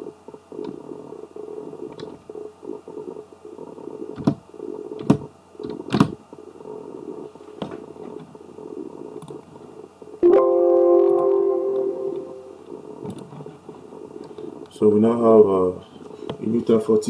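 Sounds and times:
ringing tone with several pitches: 0:10.2 - 0:12.6.

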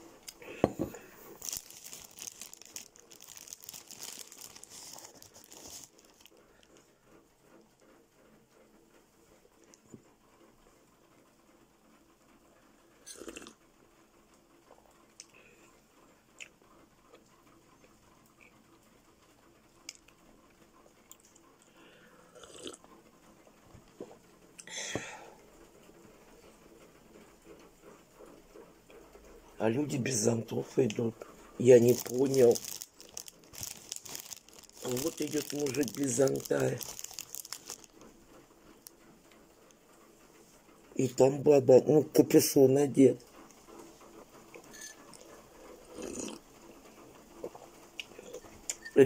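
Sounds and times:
wrapper crinkling and rustling: 0:00.0 - 0:06.7, 0:30.8 - 0:38.2.

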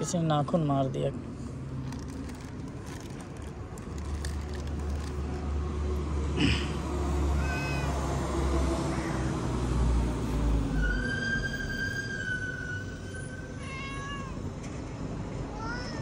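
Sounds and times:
low vehicle rumble: 0:00.8 - 0:13.6
cats meowing: 0:07.2 - 0:08.2, 0:08.8 - 0:09.4, 0:13.6 - 0:14.4.

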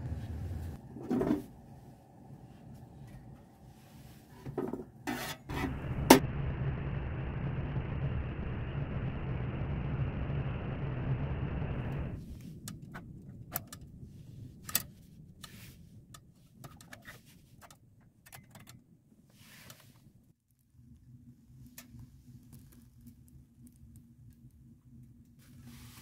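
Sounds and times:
kindling crackling and popping: 0:21.6 - 0:25.4.

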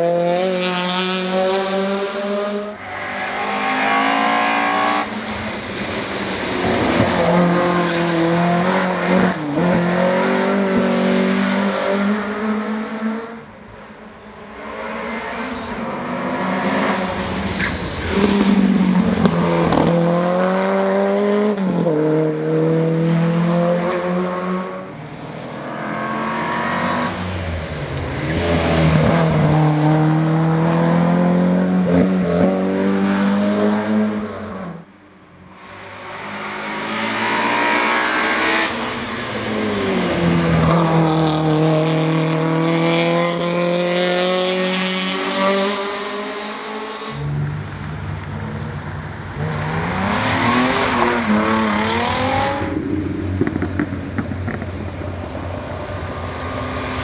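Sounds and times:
race car engine revving: 0:00.0 - 0:13.4, 0:35.8 - 0:57.0.

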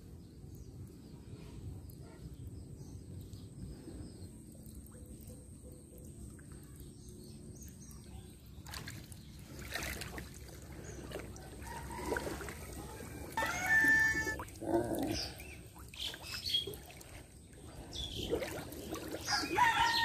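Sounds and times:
water splashing and trickling: 0:00.0 - 0:20.0
short pitched call: 0:13.4 - 0:14.4.

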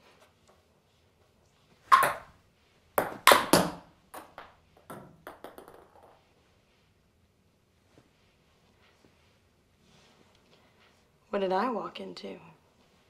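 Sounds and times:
table tennis ball bouncing: 0:01.9 - 0:02.4, 0:03.0 - 0:06.2.

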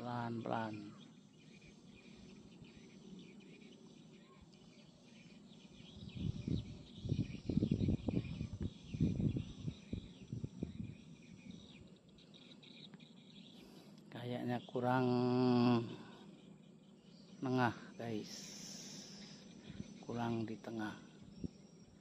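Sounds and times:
birds chirping: 0:00.0 - 0:22.0
insects chirping: 0:00.0 - 0:22.0
wind gusts buffeting microphone: 0:05.8 - 0:11.8, 0:19.6 - 0:20.2.

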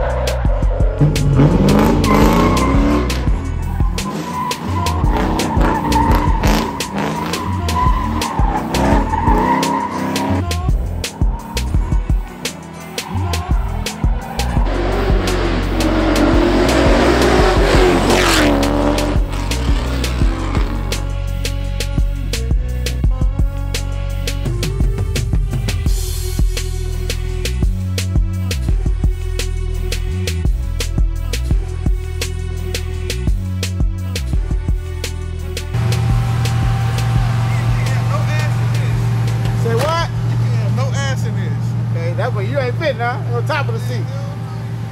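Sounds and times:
car engine revving: 0:00.0 - 0:29.5, 0:35.0 - 0:44.9
music: 0:00.0 - 0:44.9
tyres squealing: 0:01.7 - 0:21.0.

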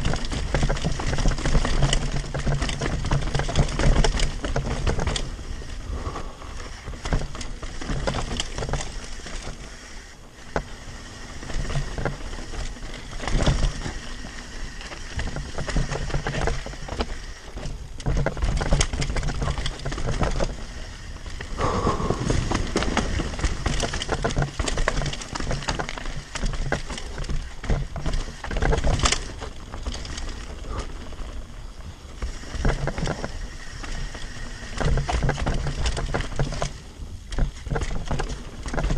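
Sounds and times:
bike chain and frame clattering: 0:00.0 - 0:38.9
bike tyres rolling over dirt: 0:00.0 - 0:38.9.

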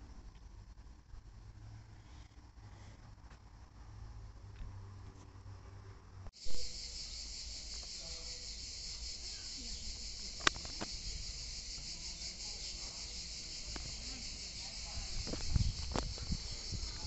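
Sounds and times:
insects chirring: 0:06.4 - 0:17.0
sharp click: 0:10.4 - 0:11.0.

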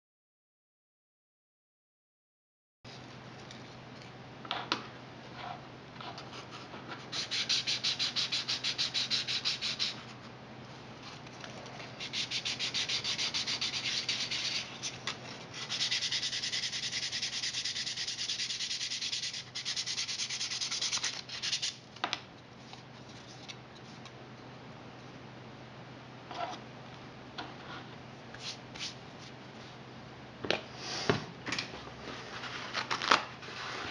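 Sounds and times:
sandpaper scraping plastic: 0:06.3 - 0:10.0, 0:12.0 - 0:21.8.

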